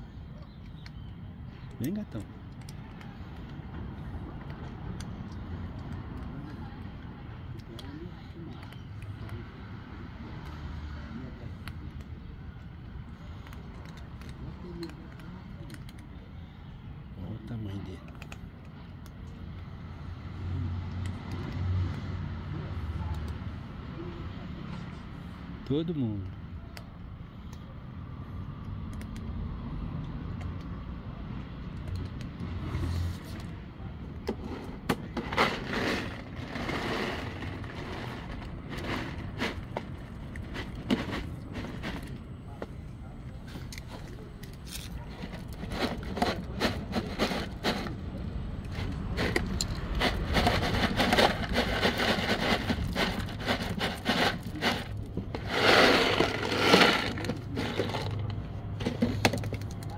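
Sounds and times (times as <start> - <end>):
cats crunching dry kibble: 0.0 - 29.4, 30.2 - 59.9
low rumble of street traffic: 0.0 - 59.9
handling noise rustling and scraping: 34.3 - 48.0, 48.6 - 59.9.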